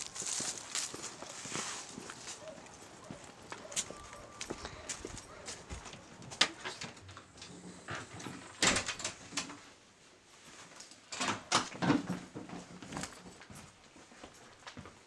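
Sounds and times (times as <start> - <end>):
footsteps: 0.0 - 8.5
door opening and shutting: 7.6 - 9.5.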